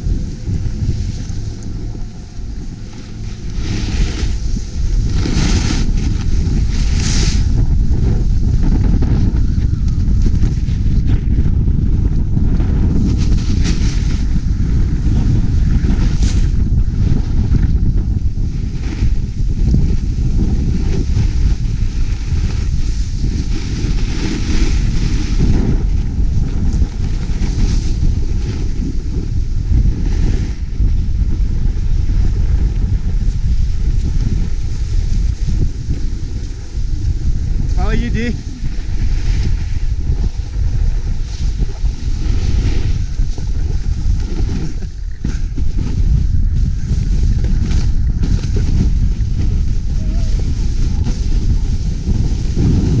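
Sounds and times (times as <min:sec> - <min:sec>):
ski edges scraping snow: 0:00.0 - 0:09.3, 0:12.8 - 0:16.6, 0:18.4 - 0:30.7, 0:31.7 - 0:53.0
wind buffeting microphone: 0:00.0 - 0:53.0.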